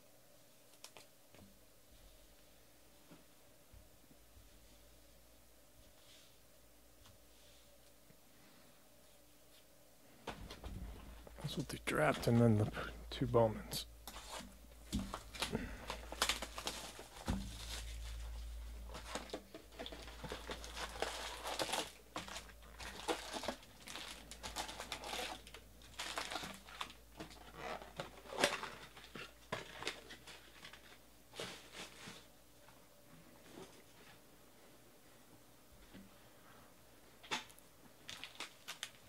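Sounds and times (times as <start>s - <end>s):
foil wrappers crinkling: 14.0s - 32.3s, 38.0s - 39.0s.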